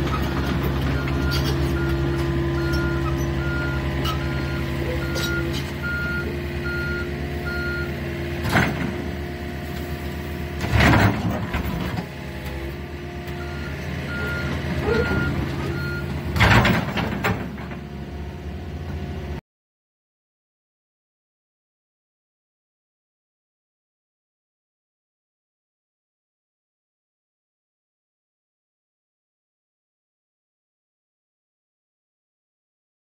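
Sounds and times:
excavator diesel engine running: 0.0 - 19.4
warning alarm beeping: 1.0 - 8.0
loud grinding crashes: 8.4 - 9.2, 10.6 - 12.1, 14.5 - 17.8.

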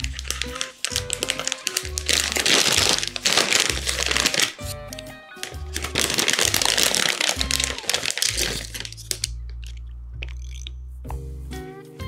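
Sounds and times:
background music with bass line: 0.0 - 12.0.

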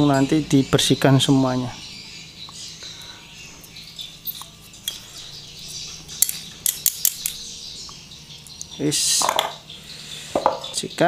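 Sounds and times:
metal clicks of pliers: 6.2 - 7.4.

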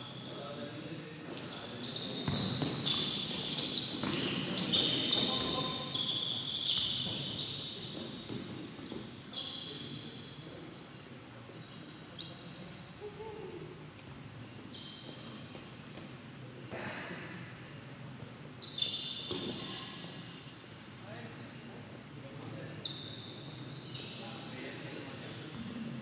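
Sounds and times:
shoes squeaking on court: 1.2 - 12.6, 14.6 - 16.4, 18.2 - 20.0, 22.5 - 24.4.

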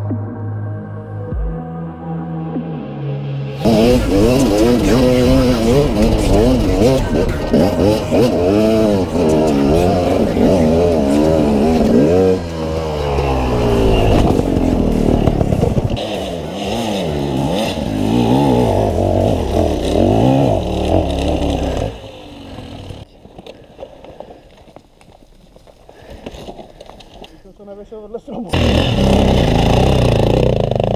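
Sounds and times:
dirt bike engine revving: 3.6 - 23.1, 28.5 - 30.9.

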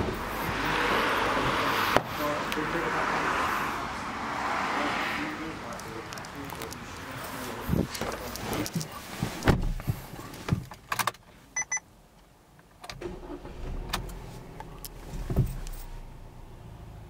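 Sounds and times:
car engine cranking and idling: 0.0 - 17.0
handling knocks in car cabin: 9.2 - 10.8, 15.1 - 15.6
short electronic beeps: 11.6 - 11.8.

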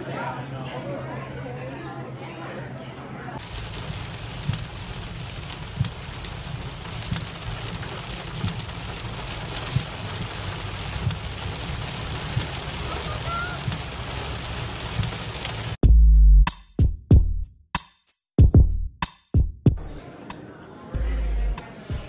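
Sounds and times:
heavy rain on car roof: 3.4 - 15.8.

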